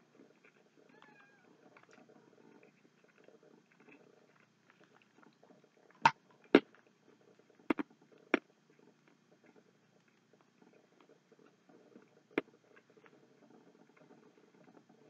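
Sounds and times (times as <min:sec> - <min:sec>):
person chewing: 0:01.7 - 0:05.4.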